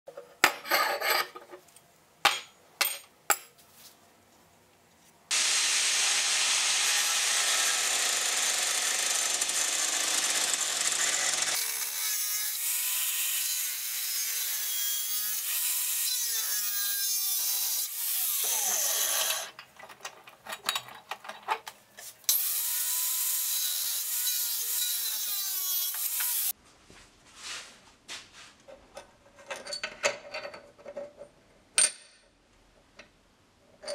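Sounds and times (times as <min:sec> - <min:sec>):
angle grinder cutting steel: 0:05.3 - 0:19.5, 0:22.3 - 0:26.5.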